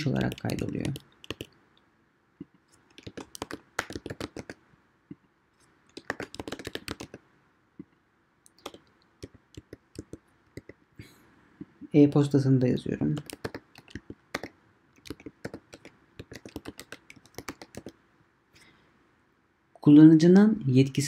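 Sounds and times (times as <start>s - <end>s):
keyboard typing: 0.0s - 1.5s, 2.8s - 4.6s, 5.9s - 7.2s, 8.5s - 10.8s, 13.1s - 18.0s.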